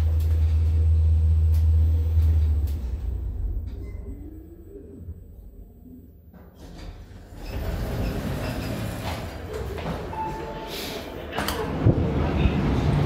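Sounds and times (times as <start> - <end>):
lift doors sliding open: 0.0 - 4.4, 6.5 - 13.0
low hum in lift car: 0.0 - 8.6
station rumble: 0.0 - 13.0.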